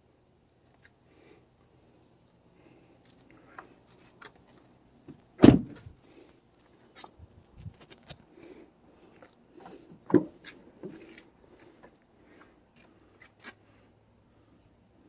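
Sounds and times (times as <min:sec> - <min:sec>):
handling clicks and rustles: 0:03.0 - 0:08.3.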